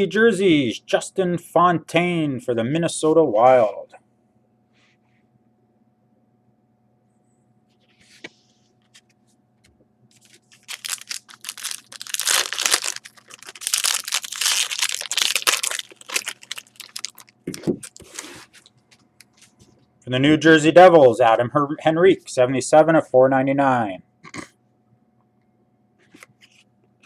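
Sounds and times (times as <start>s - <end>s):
card pack wrapper crinkling: 10.1s - 19.4s
wrapper rustle: 10.1s - 19.6s.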